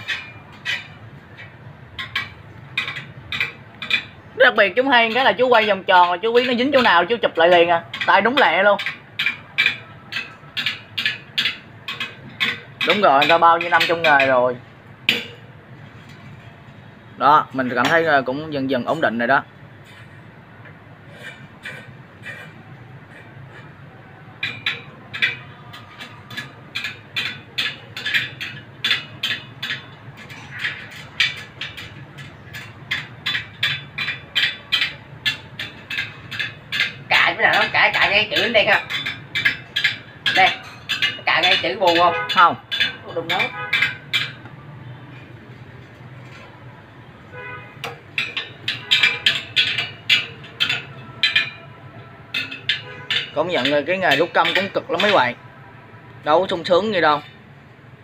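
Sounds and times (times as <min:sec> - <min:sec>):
sharp metallic clicks: 0:47.8 - 0:51.7.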